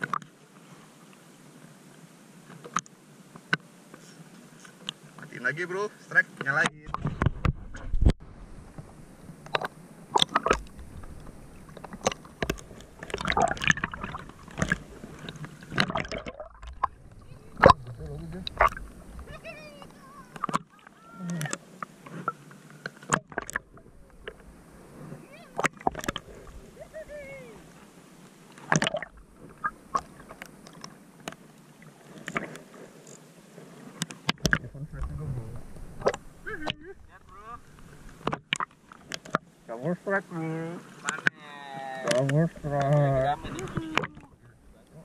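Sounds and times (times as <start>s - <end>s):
sea water sloshing and splashing: 8.6s - 39.7s, 40.6s - 45.0s
muffled underwater gurgling: 9.4s - 21.7s, 34.4s - 38.3s, 42.0s - 45.0s.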